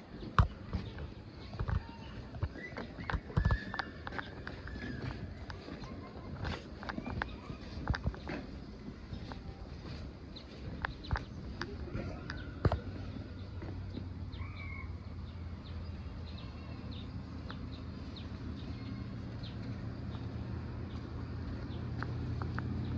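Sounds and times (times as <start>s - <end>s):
bird chirps: 9.1s - 21.9s.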